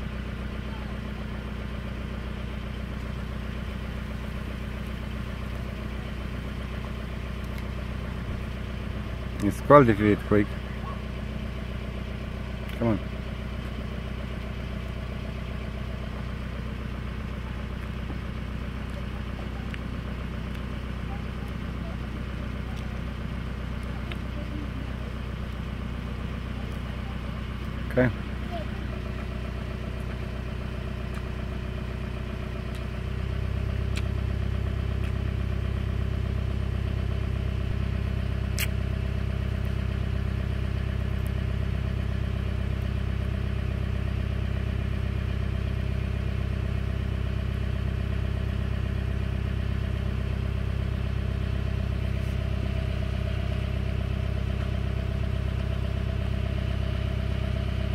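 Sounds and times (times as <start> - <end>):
engine idling: 0.0 - 57.9
short click: 38.5 - 38.8.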